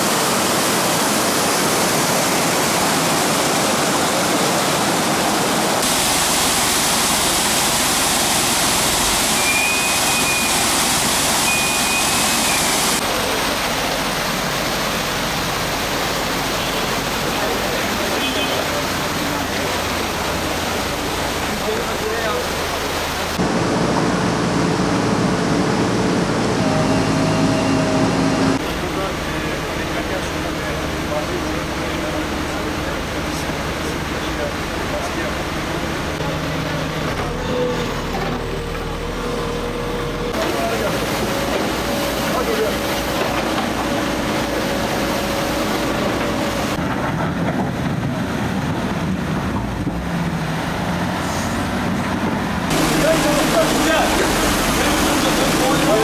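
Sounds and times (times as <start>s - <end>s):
water rushing: 0.0s - 46.9s, 48.1s - 56.0s
engine humming: 7.6s - 33.5s, 34.6s - 56.0s.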